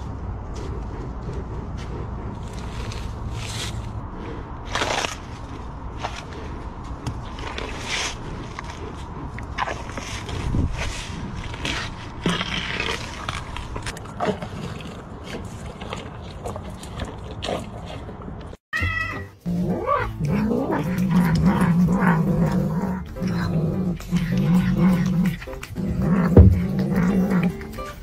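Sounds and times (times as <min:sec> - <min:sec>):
rhinoceros chewing watermelon: 0:00.0 - 0:18.6, 0:20.1 - 0:28.0
cat crying: 0:18.8 - 0:22.6
low animal vocal sound: 0:19.4 - 0:28.0.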